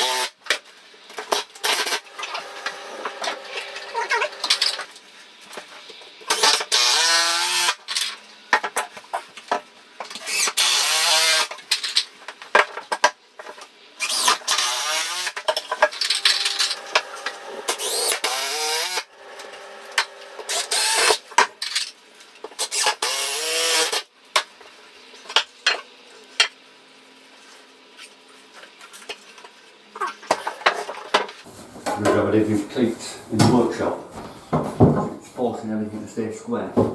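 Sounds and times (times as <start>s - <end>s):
cordless drill whining: 16.2s - 21.2s.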